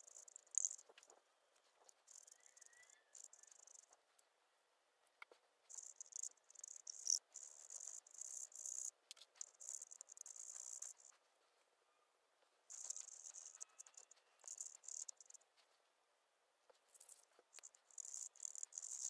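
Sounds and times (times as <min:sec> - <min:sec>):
cotton swab scratching on metal: 0:12.7 - 0:15.4.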